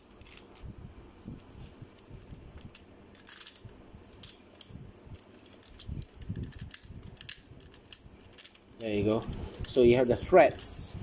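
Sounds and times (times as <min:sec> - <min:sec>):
plastic toy parts clicking: 0:00.2 - 0:00.6, 0:02.2 - 0:08.8.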